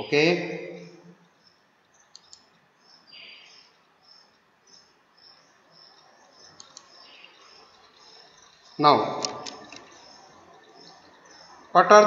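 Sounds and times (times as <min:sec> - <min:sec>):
soft clicks: 0:02.1 - 0:02.6, 0:06.5 - 0:07.1.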